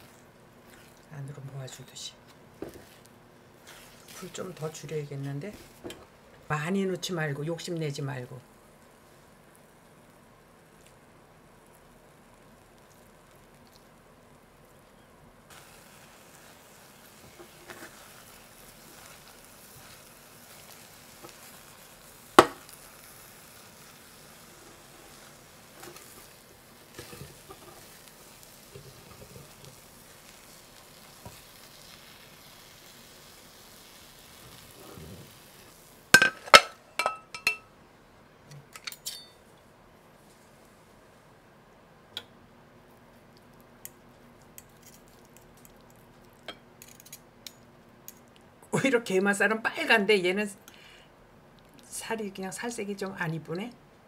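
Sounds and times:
eggs sizzling in a pan: 0.0 - 37.8
metal clinking on crockery: 36.2 - 37.7, 38.8 - 39.4.

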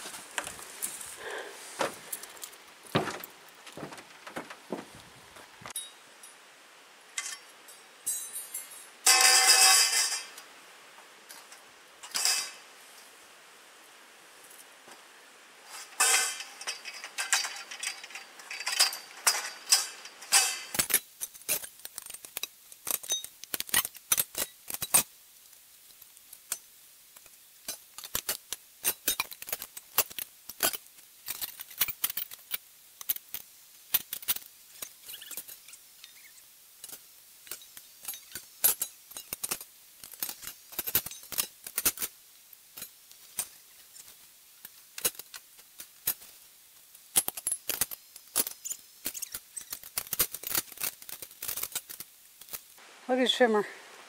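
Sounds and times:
metal poles clinking: 0.4 - 6.5, 7.2 - 10.5, 11.3 - 13.0, 15.6 - 25.0, 27.6 - 42.1.

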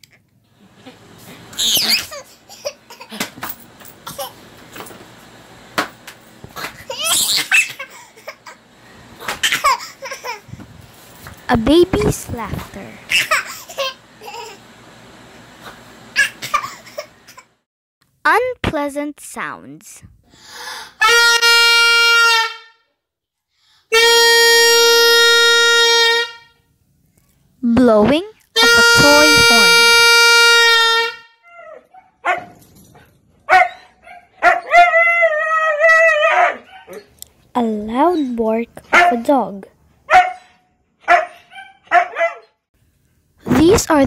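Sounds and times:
toddler laughing: 1.6 - 3.3, 4.0 - 4.4, 6.6 - 8.6, 9.2 - 10.5, 13.1 - 14.6
plastic toy horn blasts: 21.0 - 22.8, 23.9 - 26.6, 28.6 - 31.3.

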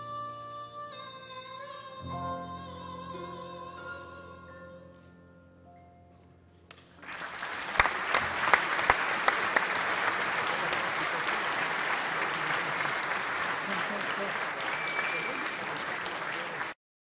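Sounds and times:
loud sharp claps: 6.7 - 16.8
audience applause: 7.0 - 16.8.

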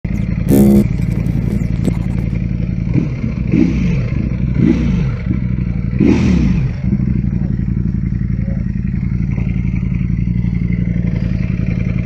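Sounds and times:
motorcycle engine revving: 0.1 - 12.0
loud electronic buzz: 0.4 - 2.3.

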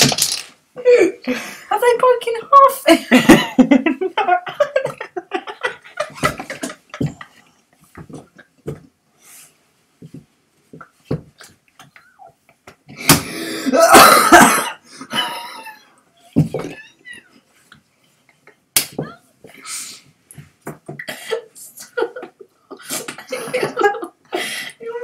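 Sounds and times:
people laughing: 21.8 - 24.2.

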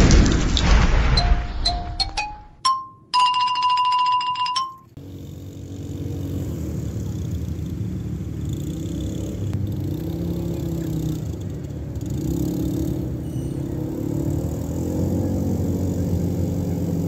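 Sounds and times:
outdoor noise: 0.0 - 17.0
electronic jingle chime: 1.1 - 4.9
quad bike engine humming: 4.2 - 17.0.

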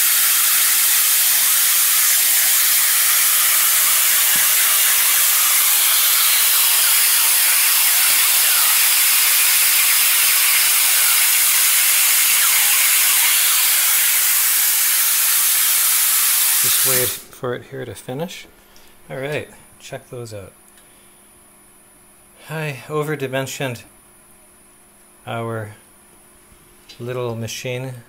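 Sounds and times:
plasma cutter torch hissing: 0.0 - 17.2.

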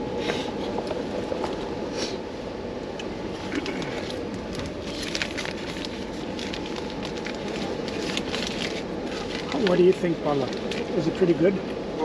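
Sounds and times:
train carriage rumble: 0.0 - 12.0
aluminium foil crinkling: 3.8 - 11.2.

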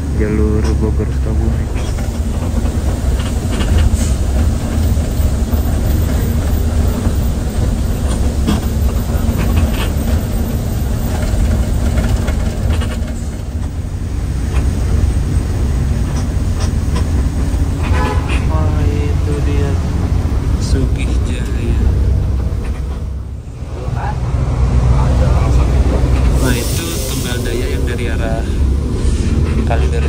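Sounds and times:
bus engine drone: 0.0 - 30.0
road rumble: 0.0 - 30.0
clicks and rattles: 1.5 - 13.8.

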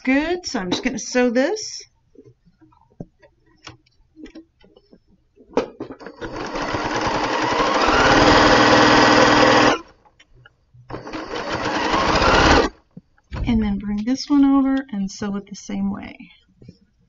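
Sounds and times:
sewing machine stitching: 6.0 - 9.9, 10.9 - 12.8.

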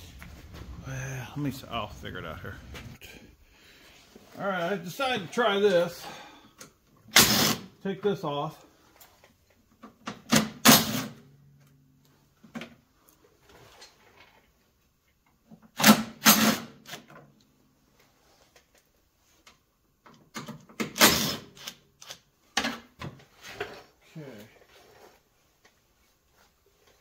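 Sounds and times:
impact driver bursts: 7.1 - 7.7, 20.8 - 21.8.

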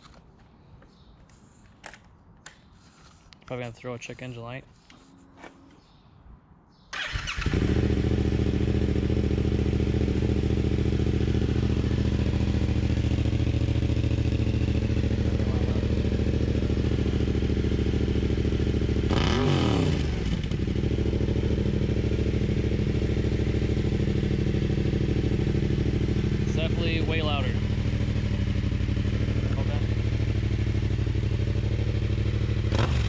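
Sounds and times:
motorcycle engine idling and revving: 7.0 - 33.0.

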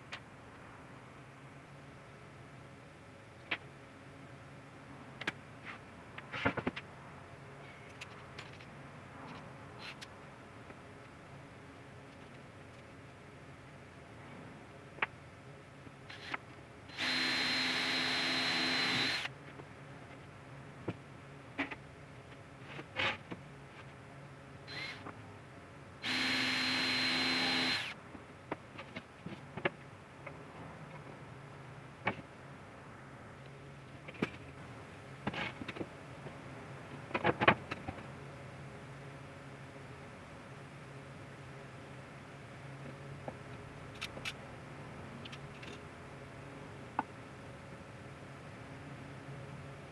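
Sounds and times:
cordless drill drilling wood: 16.1 - 19.3, 24.7 - 25.0, 26.0 - 28.0.

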